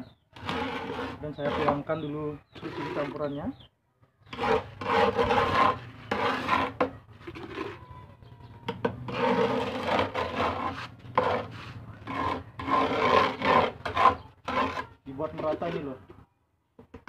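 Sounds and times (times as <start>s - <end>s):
trowel scraping gritty grout: 0.1s - 3.4s, 4.2s - 8.0s, 8.8s - 16.0s.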